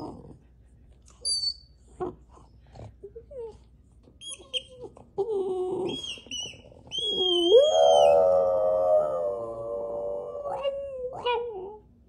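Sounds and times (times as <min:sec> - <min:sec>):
dog whining: 0:03.1 - 0:08.5
dog howling: 0:05.6 - 0:11.8.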